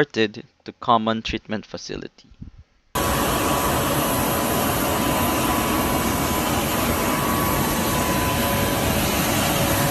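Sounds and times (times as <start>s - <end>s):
high whining tones: 3.0s - 9.9s
jet aircraft roar: 3.0s - 9.9s.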